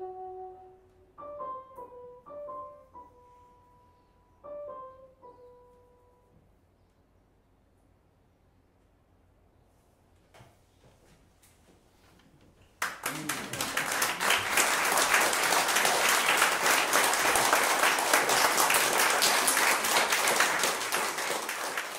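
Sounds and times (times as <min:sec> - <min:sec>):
audience applause: 0:12.8 - 0:21.9.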